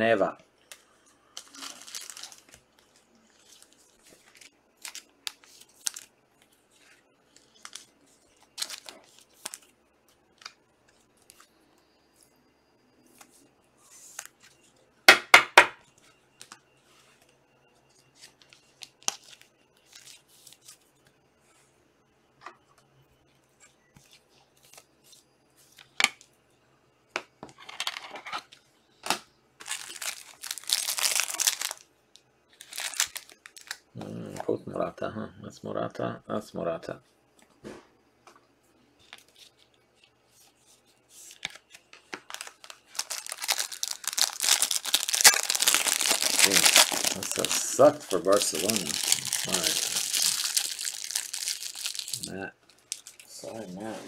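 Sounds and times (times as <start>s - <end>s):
wrappers tearing and crinkling: 1.3s - 6.1s, 7.3s - 9.7s, 29.6s - 31.8s, 32.6s - 34.4s, 41.3s - 53.3s.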